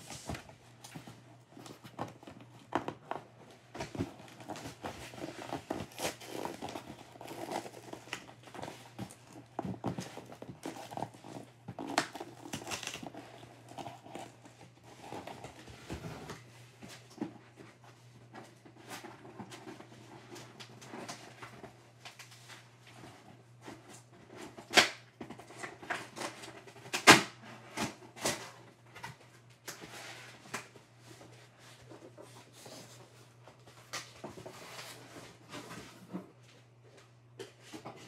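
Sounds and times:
cardboard packaging rustling: 0.0 - 24.6.

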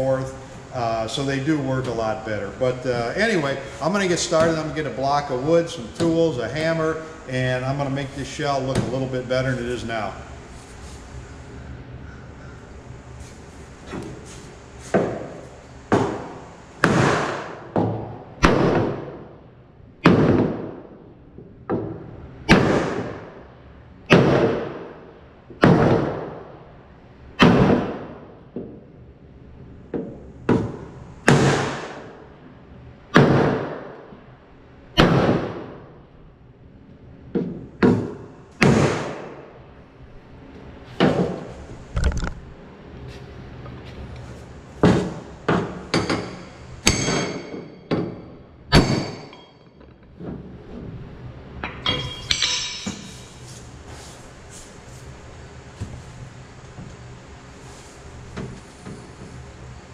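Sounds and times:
light metal clinks: 51.6 - 53.5.

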